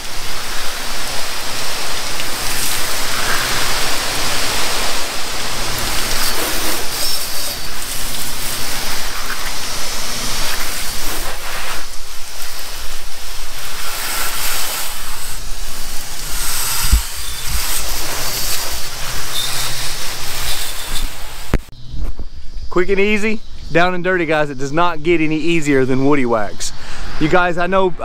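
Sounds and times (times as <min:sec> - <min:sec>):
hose water splashing on hull: 0:00.0 - 0:21.7.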